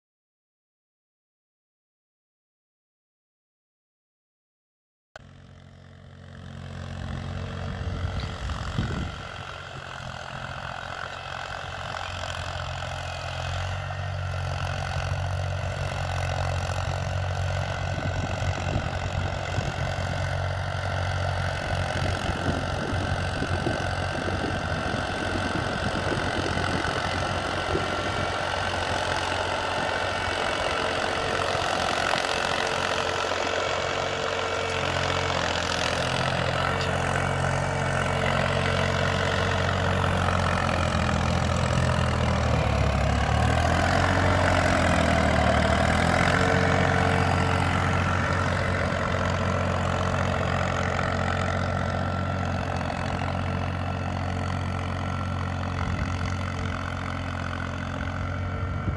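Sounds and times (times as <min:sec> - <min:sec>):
tractor diesel engine running: 0:05.2 - 0:58.9.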